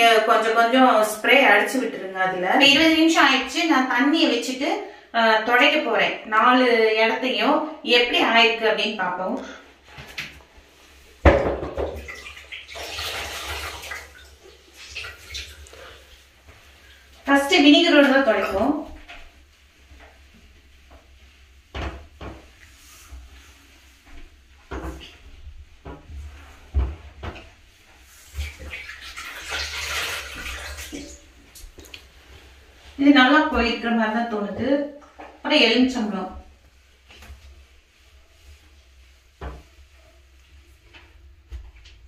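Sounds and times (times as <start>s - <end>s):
water splashing and trickling: 11.8s - 17.4s, 28.0s - 32.2s
wet cloth rubbing on glass: 12.0s - 34.5s, 35.5s - 41.5s.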